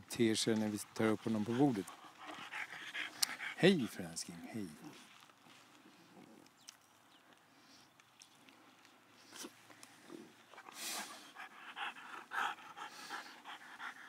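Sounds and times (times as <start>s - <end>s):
dog panting: 0.5s - 5.1s, 10.4s - 14.0s.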